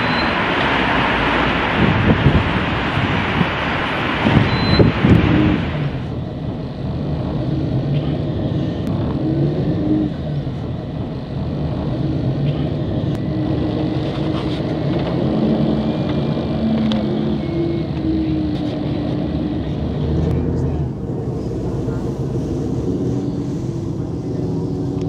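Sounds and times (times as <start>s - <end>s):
tram running rumble: 0.0s - 25.0s.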